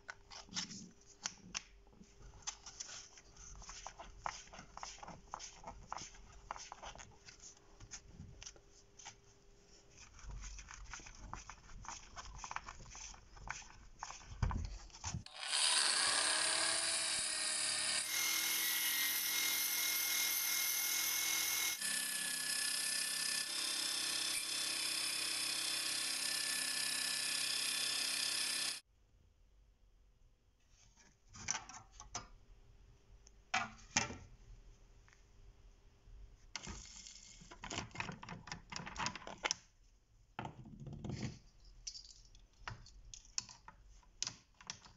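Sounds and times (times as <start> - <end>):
power tool motor whine: 15.3 - 22.1, 24.0 - 28.8.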